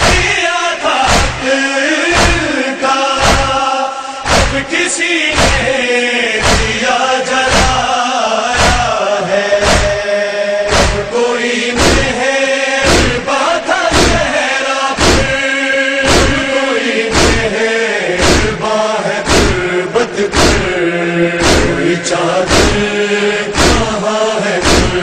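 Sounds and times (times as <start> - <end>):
hands beating on chests: 0.0 - 0.4, 1.1 - 1.4, 2.2 - 2.4, 3.2 - 3.6, 4.2 - 4.7, 5.3 - 5.7, 6.4 - 6.8, 7.5 - 7.8, 8.6 - 8.9, 9.6 - 10.0, 10.7 - 11.1, 11.8 - 12.2, 12.8 - 13.2, 13.9 - 14.3, 15.0 - 15.4, 16.1 - 16.4, 17.1 - 17.5, 18.2 - 18.6, 19.3 - 19.6, 20.3 - 20.7, 21.4 - 21.8, 22.5 - 22.9, 23.5 - 23.9, 24.6 - 25.0
men chanting in unison: 0.0 - 25.0.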